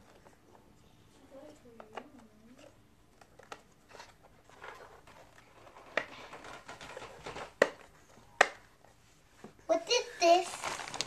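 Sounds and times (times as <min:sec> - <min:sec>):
soft plastic rustling: 0:00.0 - 0:11.0
plastic parts clicking and tapping: 0:01.7 - 0:08.7.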